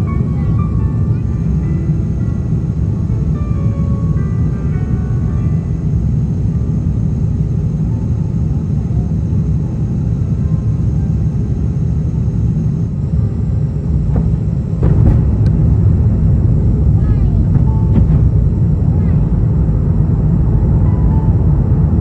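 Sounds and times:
airliner cabin rumble: 0:00.0 - 0:22.0.

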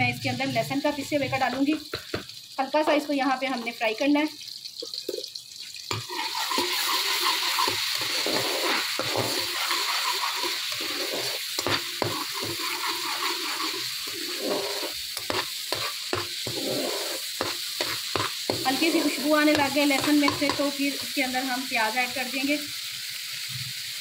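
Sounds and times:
garlic sizzling in hot oil: 0:00.0 - 0:24.0
metal spatula scraping pan: 0:05.9 - 0:21.0.

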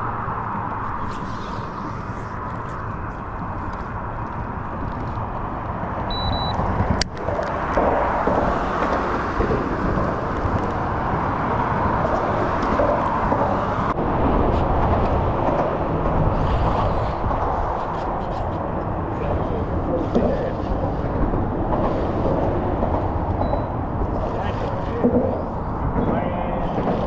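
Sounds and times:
wind buffeting microphone: 0:00.0 - 0:27.0
high beep: 0:06.1 - 0:06.6, 0:23.4 - 0:23.7.

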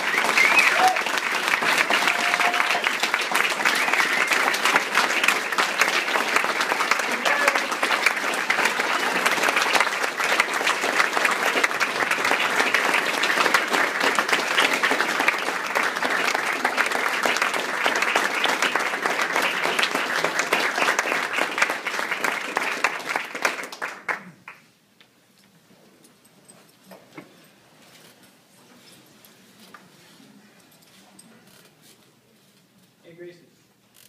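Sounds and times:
audience applauding: 0:00.0 - 0:24.7.

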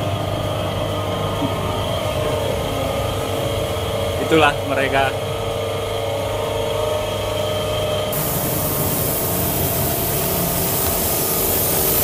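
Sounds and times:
steady machine hum: 0:00.0 - 0:12.0
paint spray gun hissing: 0:08.1 - 0:12.0.

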